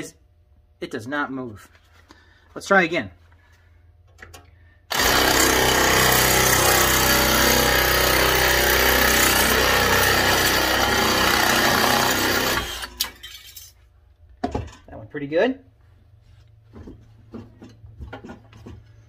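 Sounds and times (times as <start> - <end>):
electric drill nibbler cutting metal: 4.9 - 13.0.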